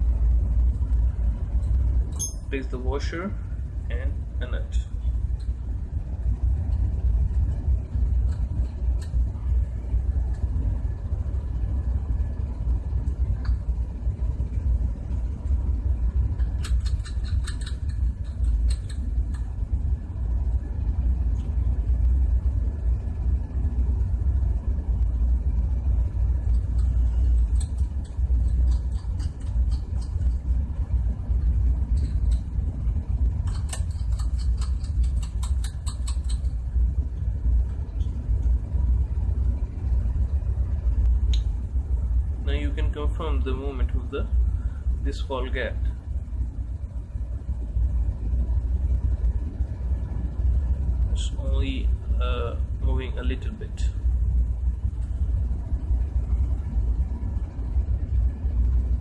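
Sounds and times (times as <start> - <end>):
low rumble: 0.0 - 59.0
metallic clicking of parts: 16.4 - 19.5, 26.8 - 30.4, 33.4 - 36.5.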